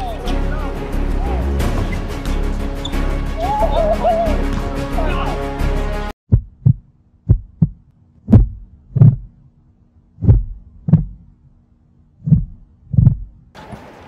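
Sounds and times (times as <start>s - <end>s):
heartbeat thumps: 6.3s - 9.4s, 10.2s - 11.4s, 12.2s - 13.5s.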